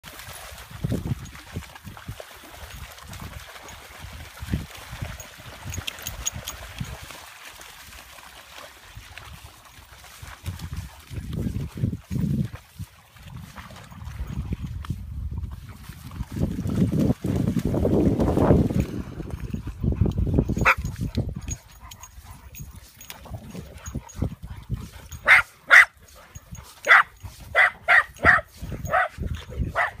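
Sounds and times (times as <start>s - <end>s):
dogs splashing through water: 0.0s - 30.0s
wind rumbling on microphone: 0.1s - 7.2s, 8.9s - 25.5s, 26.1s - 30.0s
dog barking: 25.2s - 26.0s, 26.8s - 30.0s.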